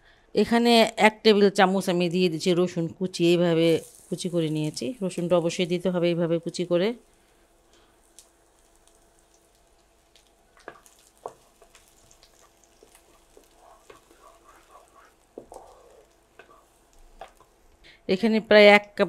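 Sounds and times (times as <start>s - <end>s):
garlic sizzling in oil: 3.1s - 17.9s.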